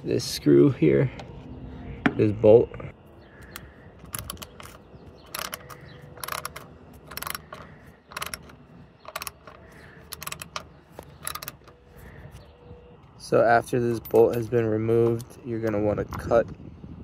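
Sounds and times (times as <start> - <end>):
ratchet wrench clicking: 4.0 - 11.7.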